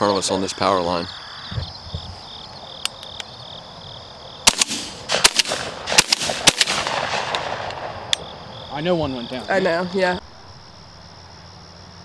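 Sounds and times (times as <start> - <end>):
crickets trilling: 0.0 - 12.0
shotgun shots: 4.4 - 8.1.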